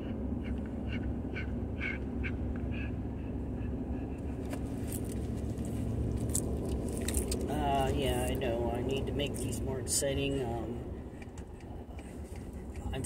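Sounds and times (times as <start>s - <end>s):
truck road and engine rumble: 0.0s - 13.0s.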